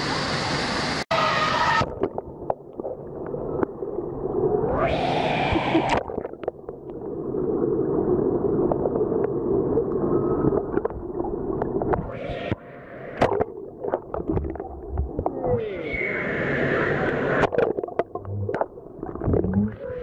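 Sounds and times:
above-water pool sound: 0.0s - 20.0s
muffled underwater churning rumble: 1.9s - 20.0s
sharp clicks and bubble pops: 17.4s - 19.8s.

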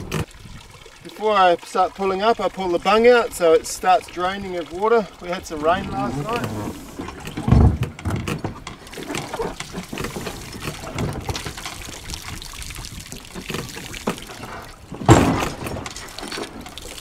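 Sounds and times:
boat and rigging knocks: 0.0s - 0.3s, 3.8s - 17.0s
water pouring and trickling: 0.0s - 17.0s.

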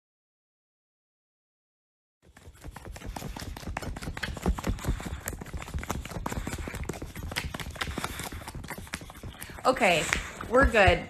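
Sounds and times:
dog rubbing against microphone: 2.3s - 11.0s.

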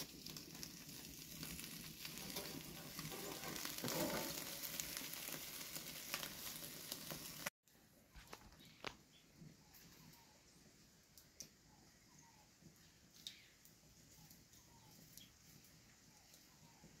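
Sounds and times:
fish sizzling in foil: 0.0s - 7.5s
wood fire crackling: 0.0s - 11.6s.

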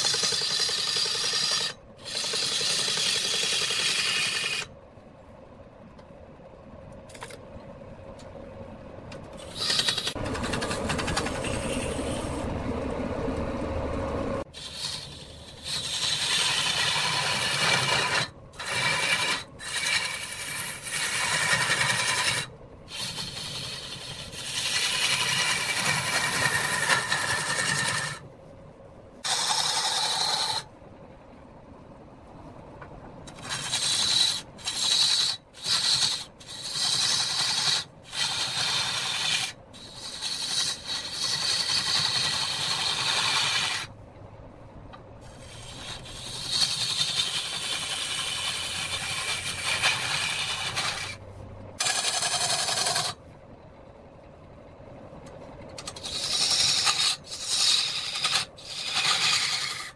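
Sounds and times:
lathe tool grinding wood: 14.6s - 28.2s, 33.4s - 43.9s, 45.3s - 51.2s, 51.8s - 53.2s, 55.8s - 59.9s.

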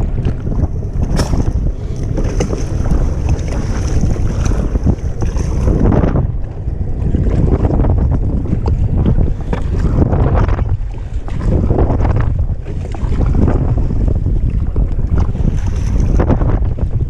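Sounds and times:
paddle and waves splashing: 0.0s - 17.0s
wind buffeting microphone: 0.0s - 17.0s.

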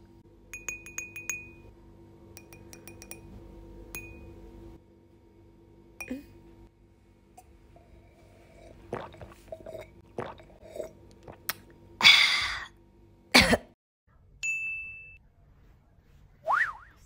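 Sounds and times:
bright ding: 3.9s - 4.3s, 14.4s - 15.2s
gulping a drink: 8.5s - 11.6s.

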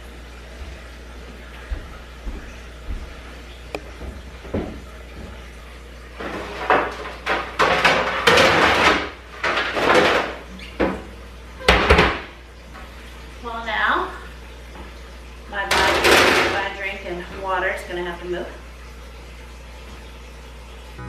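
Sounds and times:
baking pans clattering: 6.2s - 12.3s, 15.6s - 16.8s.

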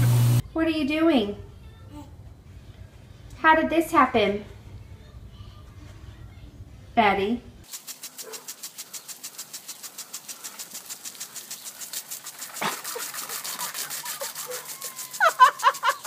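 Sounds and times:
water spray hissing: 7.6s - 16.0s
impact sprinkler ticking: 7.7s - 16.0s.

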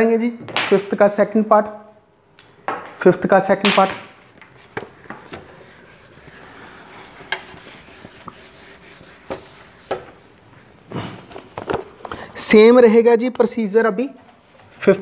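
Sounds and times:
duster rubbing whiteboard: 4.5s - 10.2s.

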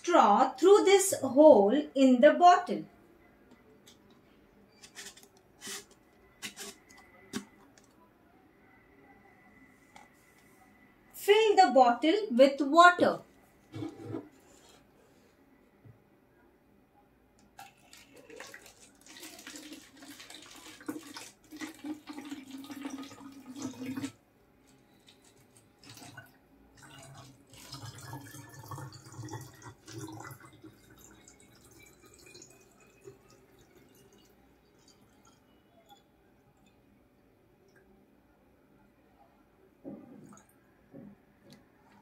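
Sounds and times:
water pouring into plastic bottle: 17.6s - 24.2s, 24.9s - 35.4s.

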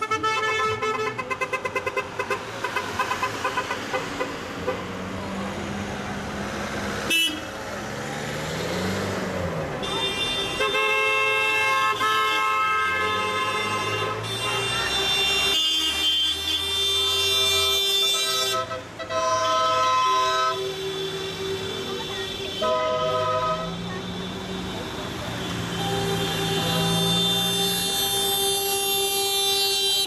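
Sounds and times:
car horns honking: 0.0s - 5.0s, 7.0s - 7.6s, 9.7s - 30.0s
car engines running: 1.0s - 29.8s.

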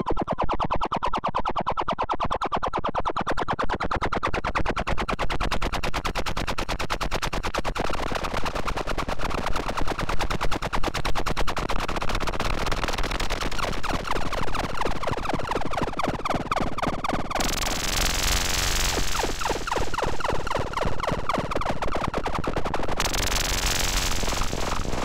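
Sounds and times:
stuttering electronic pulses: 12.7s - 25.0s.

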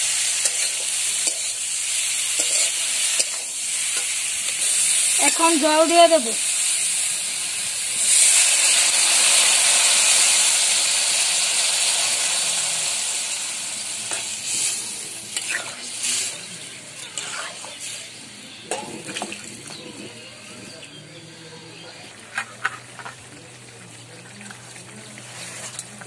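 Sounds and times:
water sizzling in hot oil: 0.0s - 20.9s, 22.0s - 26.0s
metal spatula scraping pan: 2.3s - 5.4s, 15.3s - 16.4s, 17.0s - 19.8s, 22.3s - 23.2s.

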